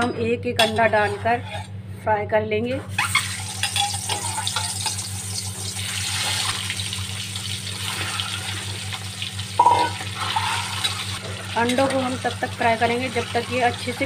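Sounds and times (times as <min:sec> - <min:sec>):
eggs sizzling in hot oil: 0:02.9 - 0:14.0.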